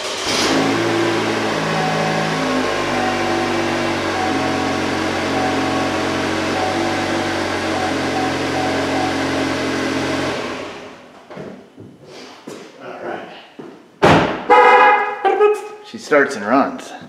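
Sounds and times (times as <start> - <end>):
car engine idling: 0.0 - 11.1.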